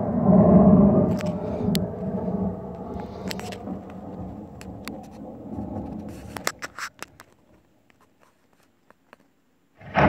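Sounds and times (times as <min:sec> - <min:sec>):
recorded thunder rumbling: 0:00.0 - 0:07.8, 0:09.8 - 0:10.0.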